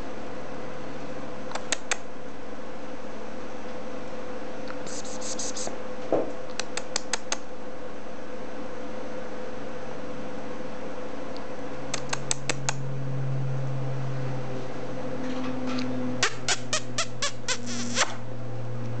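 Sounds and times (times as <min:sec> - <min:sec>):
background hum: 0:00.0 - 0:19.0
sharp clicks: 0:01.5 - 0:02.0, 0:06.5 - 0:07.4, 0:11.9 - 0:12.8.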